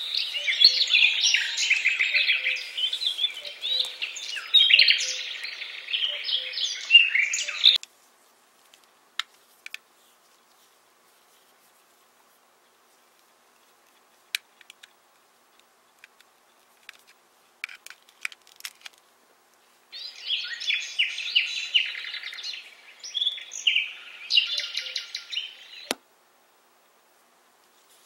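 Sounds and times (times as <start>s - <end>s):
birdsong from a speaker: 0.0s - 7.8s, 20.0s - 26.0s
plastic clicks from handling cable: 8.7s - 9.8s, 14.4s - 15.0s, 16.0s - 19.0s.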